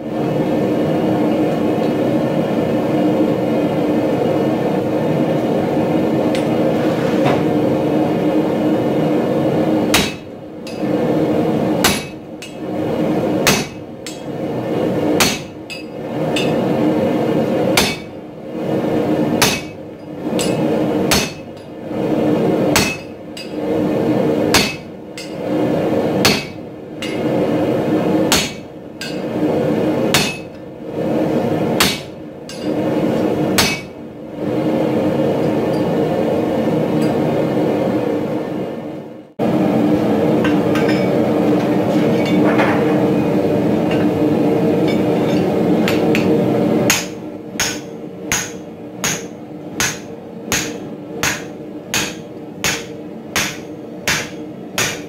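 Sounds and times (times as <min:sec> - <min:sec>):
steady hum: 0:00.0 - 0:55.0
hammer striking metal punch: 0:09.9 - 0:10.9, 0:15.2 - 0:16.5, 0:17.8 - 0:18.1, 0:22.8 - 0:23.5, 0:24.5 - 0:25.4, 0:26.2 - 0:27.3, 0:46.9 - 0:55.0.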